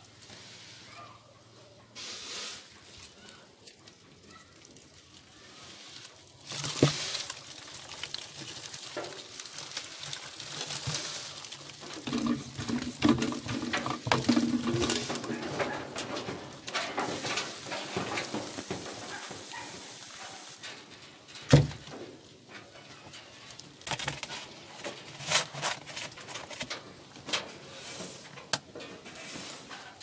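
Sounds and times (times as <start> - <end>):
plastic bins rustling and clicking: 6.3 - 30.0.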